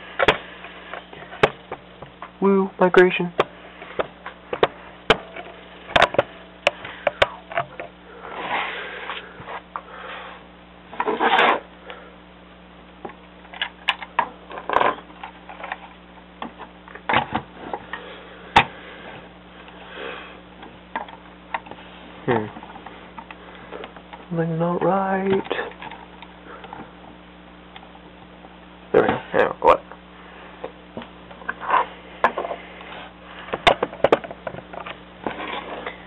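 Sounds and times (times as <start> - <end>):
rubbing and brushing: 8.3 - 9.7, 11.0 - 11.7.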